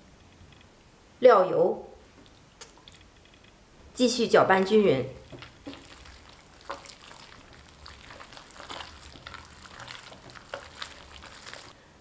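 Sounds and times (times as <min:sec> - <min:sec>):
wet meat smacking in a bowl: 0:05.2 - 0:11.8.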